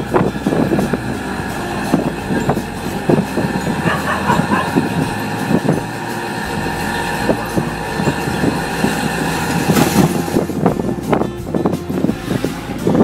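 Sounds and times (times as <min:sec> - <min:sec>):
small engine running: 0:00.0 - 0:13.0
vehicle body rattling: 0:00.0 - 0:13.0.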